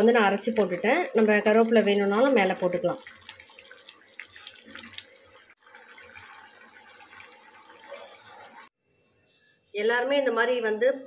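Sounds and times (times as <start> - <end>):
gravy bubbling: 0.0 - 8.7
light ticks and plops: 3.0 - 6.4.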